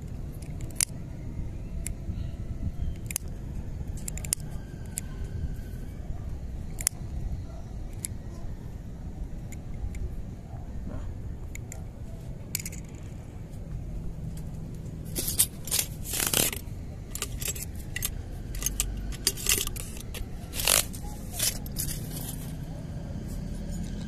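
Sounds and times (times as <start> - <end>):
fishing gear scraping and clicking: 4.0 - 5.0, 12.5 - 13.2, 15.1 - 22.6.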